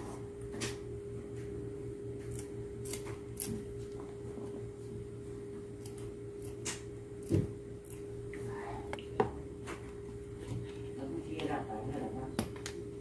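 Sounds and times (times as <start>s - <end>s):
steady background hum: 0.0s - 13.0s
scissors snipping: 2.2s - 3.6s.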